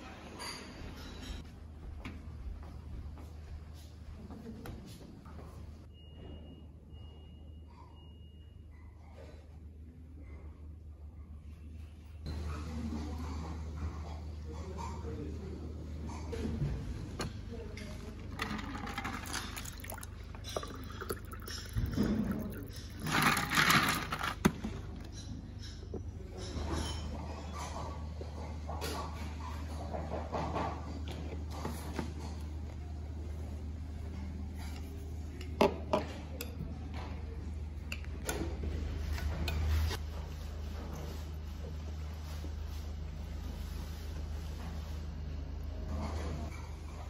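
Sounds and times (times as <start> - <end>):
water pouring into a glass: 19.2 - 23.1.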